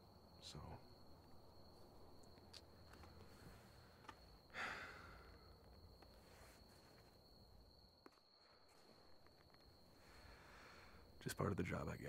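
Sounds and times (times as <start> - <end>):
man sighing: 4.5 - 5.4.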